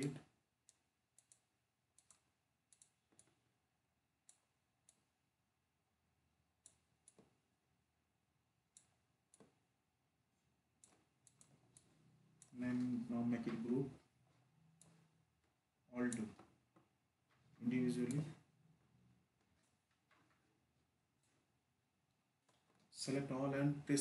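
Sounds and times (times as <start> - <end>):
computer mouse clicks: 0.0 - 3.4, 4.2 - 5.1, 6.6 - 7.4, 8.7 - 9.6, 10.8 - 13.5, 14.7 - 15.2, 16.1 - 16.9, 17.7 - 18.5.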